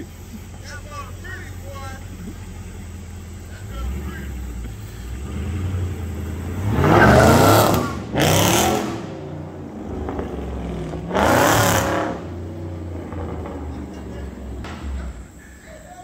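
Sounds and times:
car engine revving and idling: 0.0s - 15.8s.

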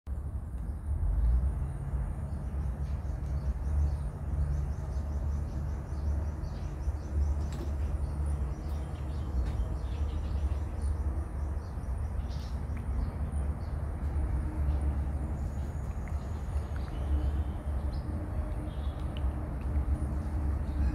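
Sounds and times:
steady low rumble: 0.1s - 20.9s
small birds chirping: 1.6s - 20.9s.

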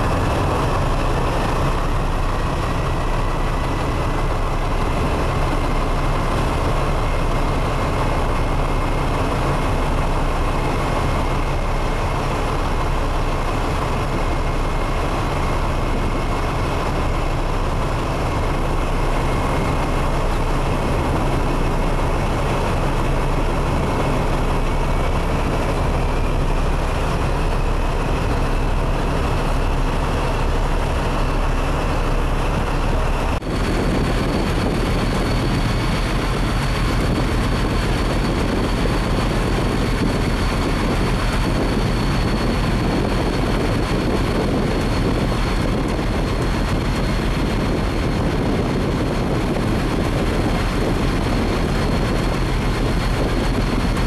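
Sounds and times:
constant rushing noise: 0.0s - 54.0s
ship engines humming: 0.0s - 54.0s.

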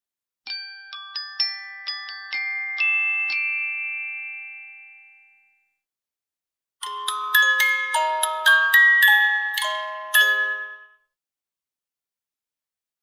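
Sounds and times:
bell-like logo jingle: 6.8s - 11.1s.

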